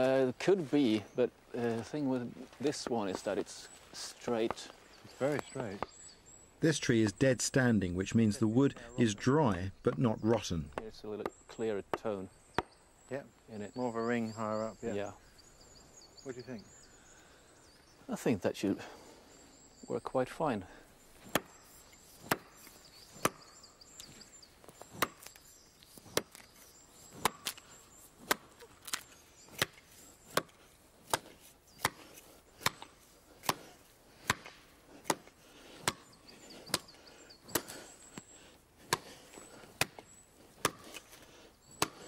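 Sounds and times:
axe chopping into tree trunk: 21.2 - 21.6, 22.2 - 23.5, 24.9 - 25.4, 26.0 - 26.5, 27.1 - 27.6, 28.2 - 36.1, 38.8 - 39.2, 39.8 - 40.0, 40.6 - 42.0.

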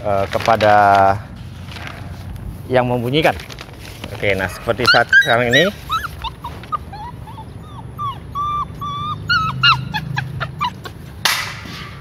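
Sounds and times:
puppy whimpering and yelping: 4.5 - 11.2.

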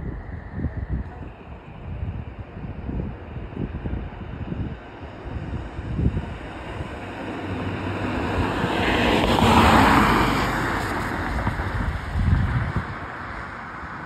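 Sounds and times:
wind gusting on microphone: 0.0 - 14.0
vehicle driving past: 5.5 - 13.0.

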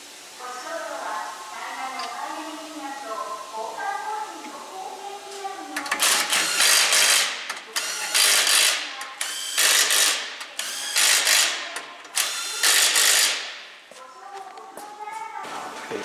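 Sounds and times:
impact wrench bursts: 5.9 - 13.7.

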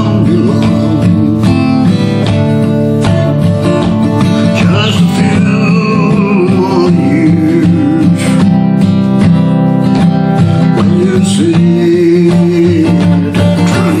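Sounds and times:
man singing long notes: 0.0 - 2.0, 4.4 - 8.4, 10.7 - 14.0
acoustic guitar strummed: 0.0 - 14.0.

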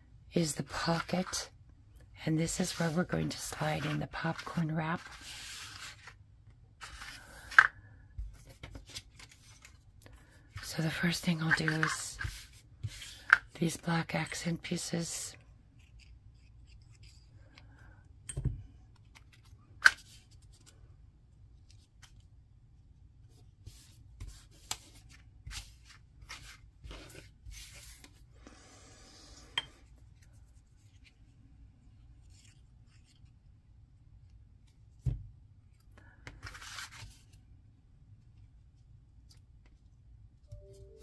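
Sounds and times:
paper rustling: 2.5 - 6.2.

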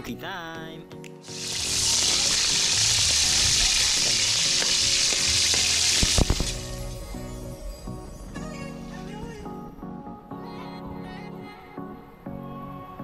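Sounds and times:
fish sizzling in hot oil: 1.2 - 6.7.

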